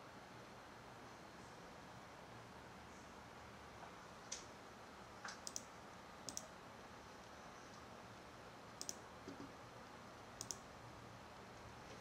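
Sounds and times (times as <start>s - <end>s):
small sharp clicks: 5.3s - 5.7s, 6.3s - 6.5s, 8.8s - 9.5s, 10.4s - 10.7s.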